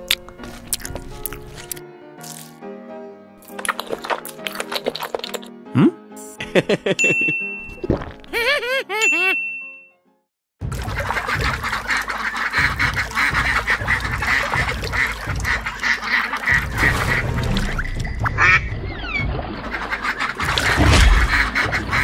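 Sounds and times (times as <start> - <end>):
ducks quacking: 10.8 - 22.0.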